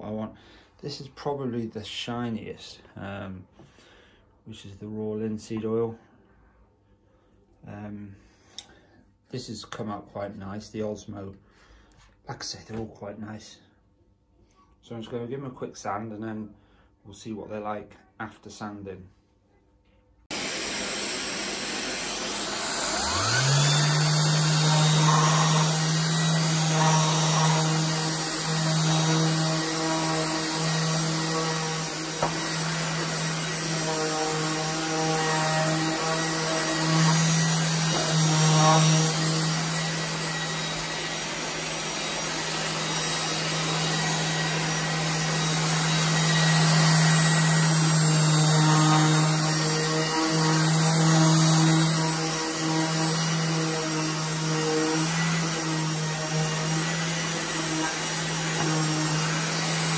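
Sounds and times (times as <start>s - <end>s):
orbital sander sanding wood: 20.3s - 59.9s.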